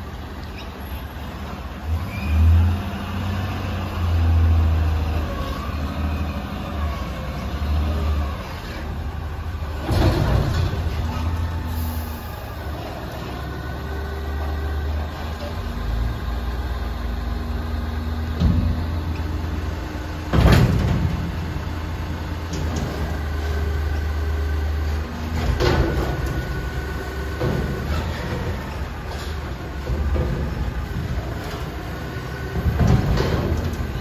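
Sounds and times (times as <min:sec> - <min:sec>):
garbage truck engine running: 0:00.0 - 0:34.0
metal clunks and bangs: 0:09.7 - 0:11.4, 0:18.3 - 0:19.4, 0:20.2 - 0:23.3, 0:25.2 - 0:34.0.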